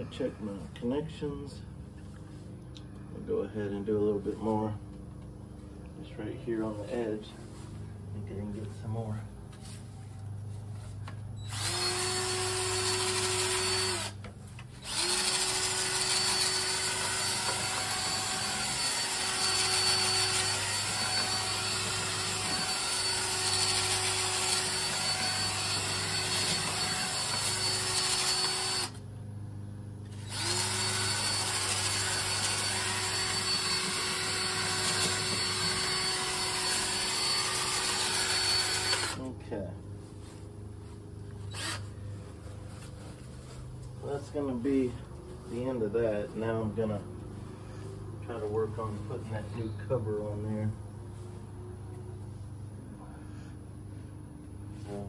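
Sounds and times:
cordless drill running: 11.4 - 29.0, 30.1 - 39.2, 41.5 - 41.9.

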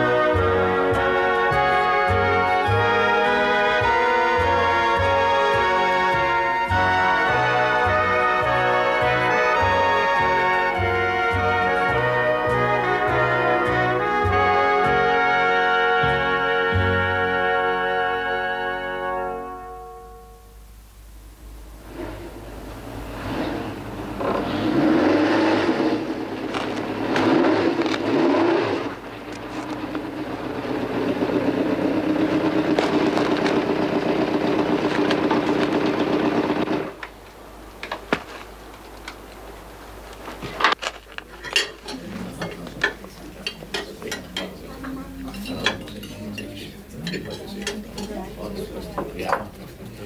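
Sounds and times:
motor vehicle running: 22.9 - 37.0
dishes and cutlery clinking: 40.5 - 49.7.

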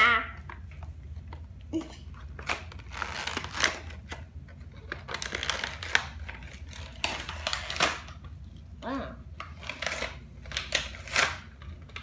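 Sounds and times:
cardboard packaging rustling: 2.2 - 8.2.

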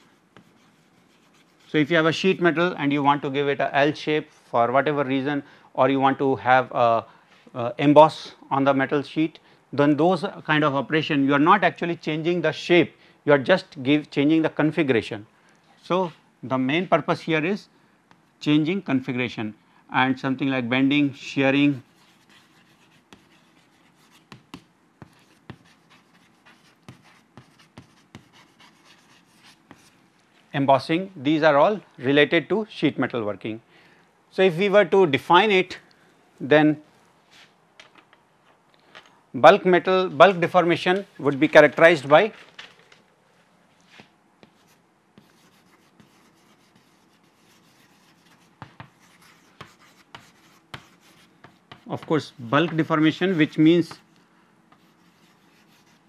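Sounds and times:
chalk tapping on blackboard: 0.0 - 1.6, 21.8 - 30.0, 44.0 - 54.1, 54.7 - 56.0
chalk scratching: 0.0 - 1.9, 21.7 - 30.0, 43.9 - 54.1, 54.7 - 56.0.

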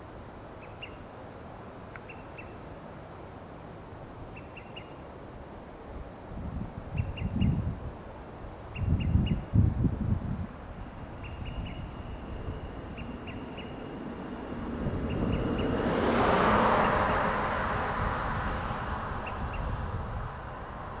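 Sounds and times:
rushing noise: 11.0 - 21.0.

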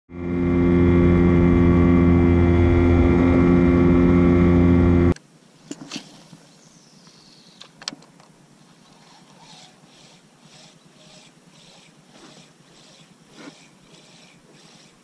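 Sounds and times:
outboard motor running: 0.1 - 5.2.

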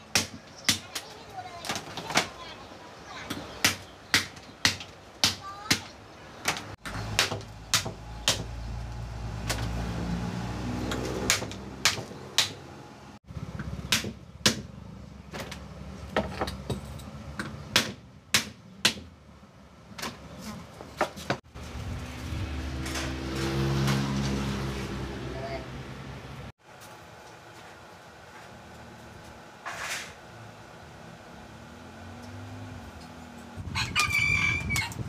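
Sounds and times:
blade chopping bamboo: 3.6 - 8.6, 10.9 - 12.6, 13.9 - 14.7, 17.7 - 19.1
engine humming: 6.7 - 18.3, 21.5 - 33.8.

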